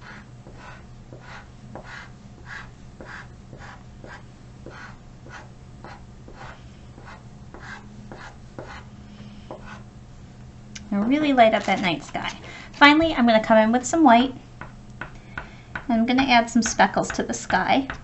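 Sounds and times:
chalk pastel scratching on paper: 0.0s - 8.9s.

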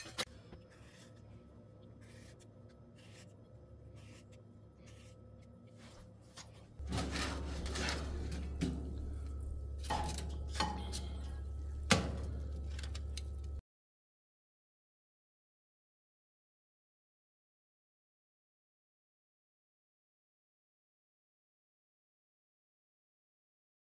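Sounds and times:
oven hum: 0.0s - 13.6s
foil rustling: 5.8s - 10.3s.

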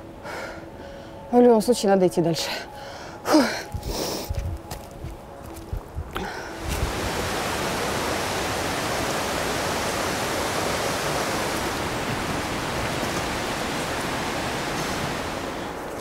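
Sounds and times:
rushing white water: 6.4s - 16.0s.

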